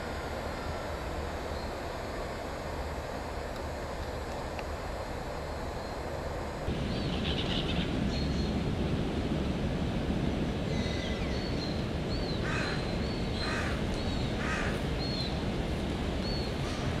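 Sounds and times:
small birds calling: 6.8 - 8.6, 10.7 - 15.4
crow cawing: 12.4 - 12.8, 13.4 - 13.8, 14.4 - 14.8.

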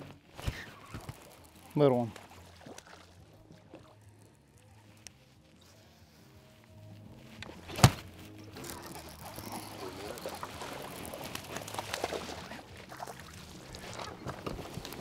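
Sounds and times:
water splashing on a boat: 0.6 - 4.6, 7.6 - 15.0.

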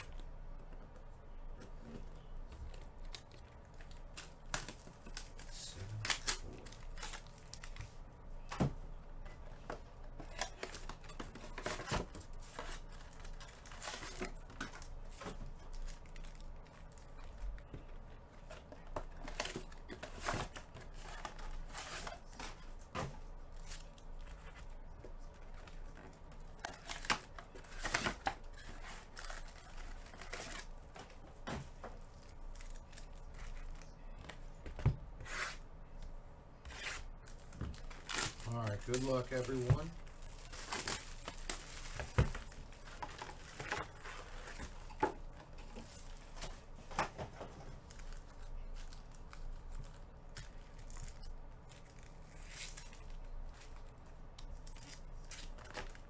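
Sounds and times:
foil packs crinkling: 10.1 - 31.2, 37.2 - 46.7.

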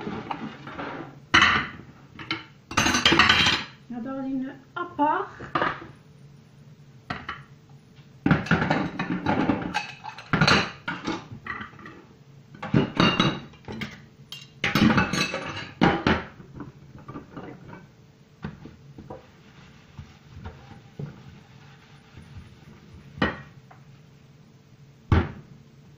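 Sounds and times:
dishes clattering in metal sink: 0.0 - 3.8, 8.2 - 12.0, 12.6 - 18.6, 23.2 - 23.6.

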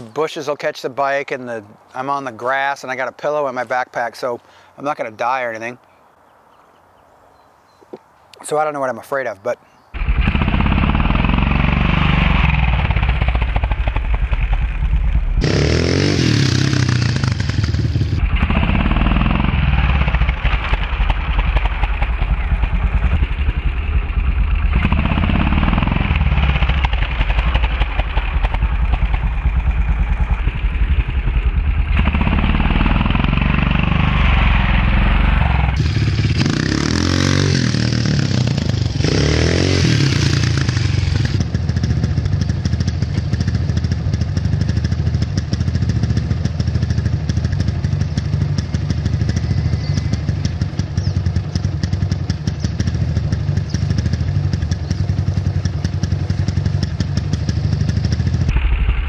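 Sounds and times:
dirt bike engine revving: 10.0 - 59.0.

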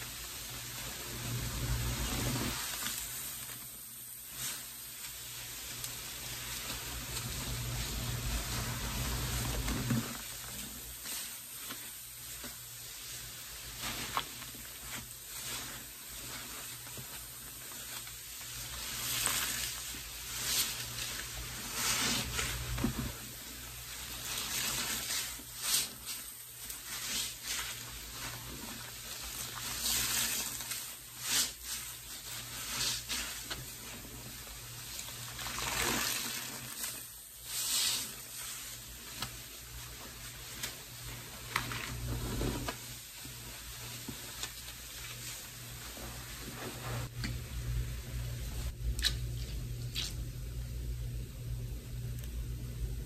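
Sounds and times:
sponges squeezed in water: 24.0 - 45.1, 48.9 - 50.3.

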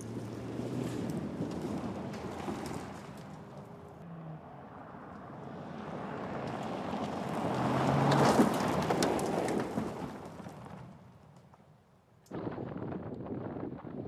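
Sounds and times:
gravel and stones clattering: 0.0 - 4.0, 6.5 - 11.6
car speeding past: 0.0 - 10.0.

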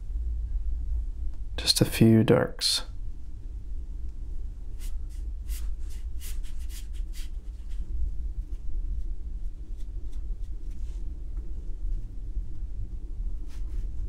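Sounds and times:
low hum: 0.0 - 14.0
paintbrush strokes on paper: 4.7 - 12.2, 13.4 - 14.0.

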